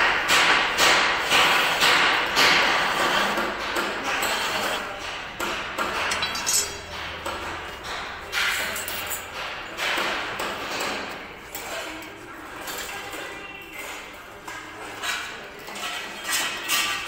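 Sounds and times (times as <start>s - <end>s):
metal knocks: 4.9s - 10.1s.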